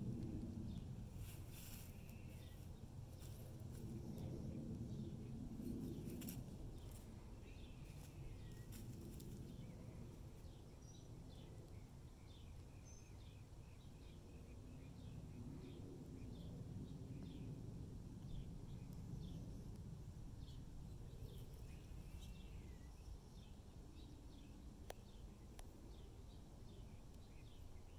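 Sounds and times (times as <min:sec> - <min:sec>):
light dry crackles: 0:00.0 - 0:10.3
low steady rumble: 0:00.0 - 0:27.9.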